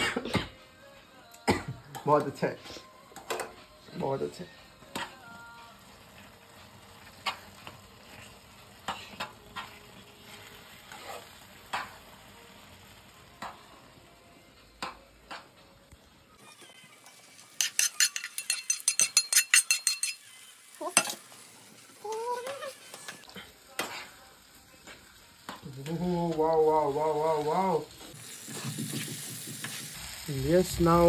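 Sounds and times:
fork scraping a pan: 7.2s - 9.7s, 10.8s - 11.9s, 17.4s - 21.1s
peanuts clattering into pan: 17.4s - 20.2s
faint hiss: 21.4s - 31.0s.

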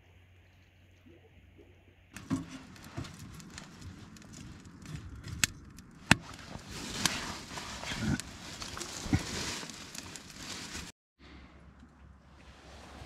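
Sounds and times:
fire crackling: 2.2s - 10.9s
sticks snapping and knocking: 2.2s - 10.9s.

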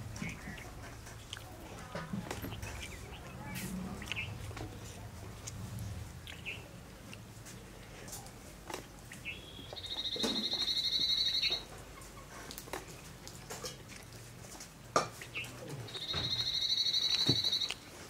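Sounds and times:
clicks and smacks of eating: 0.0s - 10.7s, 11.6s - 18.0s
bird chirping and trilling: 9.2s - 11.6s, 15.3s - 17.7s.

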